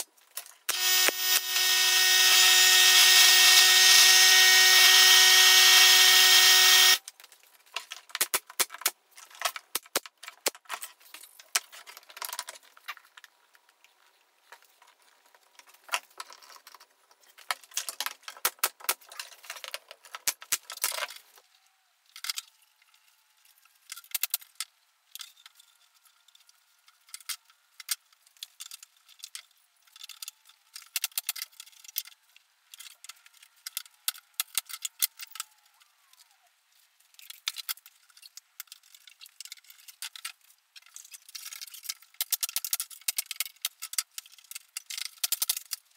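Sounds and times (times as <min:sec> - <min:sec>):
power tool whining: 0:00.7 - 0:07.0
tools and wood clattering: 0:06.2 - 0:21.4, 0:37.0 - 0:45.9.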